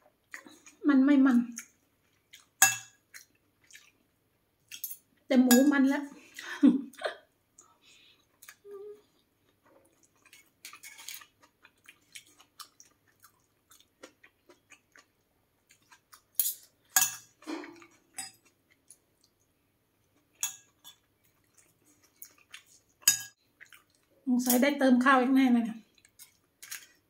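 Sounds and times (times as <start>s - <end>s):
cutlery clinking on plate: 2.6s - 3.0s, 16.4s - 18.4s, 20.4s - 21.0s, 23.0s - 23.4s.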